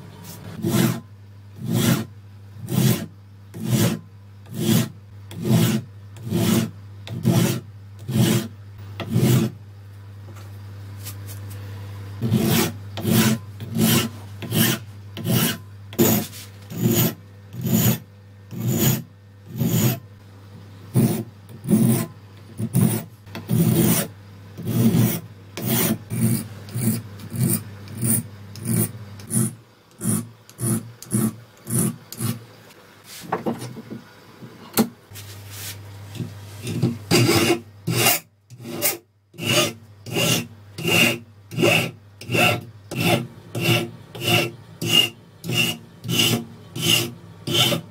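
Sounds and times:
file rasping on metal blade: 0.4s - 9.6s, 12.2s - 20.0s, 20.9s - 32.4s, 36.6s - 47.9s.

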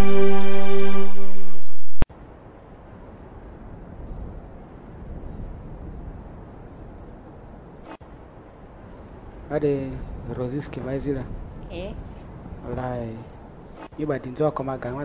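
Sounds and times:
background music: 0.0s - 1.6s
insects trilling: 2.1s - 15.0s
low background hiss: 2.1s - 15.0s.

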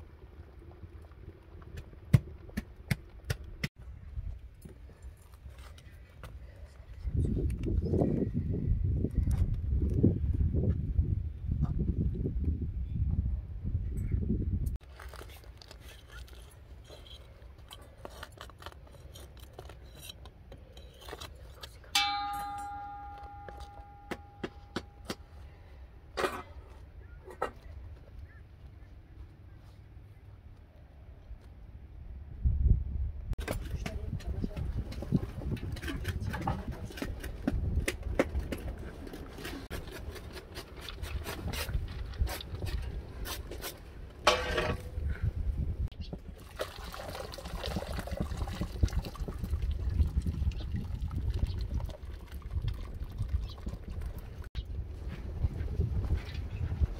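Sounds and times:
clicks and scrapes in clay oven: 14.7s - 25.3s, 26.1s - 27.9s, 33.4s - 46.2s
steel dish ringing: 22.0s - 25.1s
metal pot scraping and knocking: 26.2s - 26.7s, 44.2s - 44.9s.

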